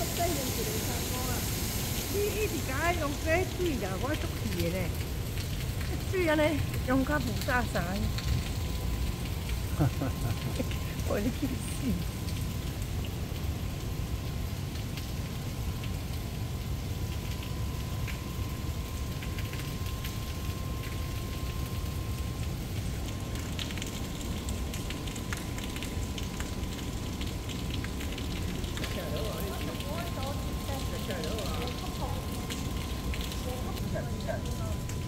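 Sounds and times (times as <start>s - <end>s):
steady rushing water noise: 0.0s - 12.3s
faint high hum: 0.0s - 35.0s.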